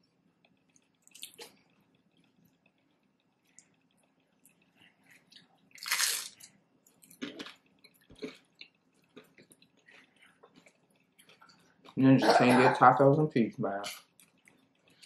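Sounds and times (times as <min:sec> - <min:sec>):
wet chewing clicks: 0:00.4 - 0:12.0, 0:13.8 - 0:15.0
crunching tortilla chips: 0:05.6 - 0:11.9.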